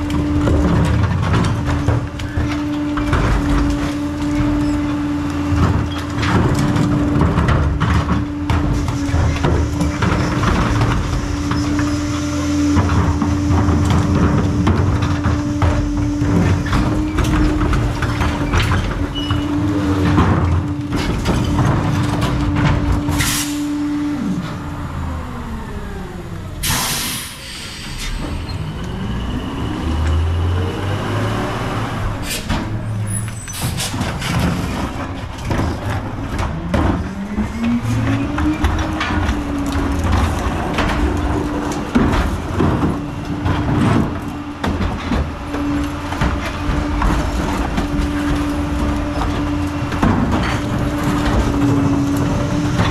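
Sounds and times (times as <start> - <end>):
carts tipping into hopper: 0.0 - 24.6, 30.0 - 52.9
garbage truck diesel engine: 0.0 - 52.9
air brake hiss: 23.2 - 23.7, 26.6 - 28.2.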